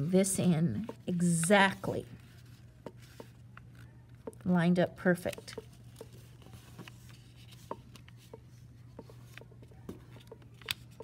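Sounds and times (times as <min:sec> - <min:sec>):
paper being folded and creased: 0:05.3 - 0:11.0.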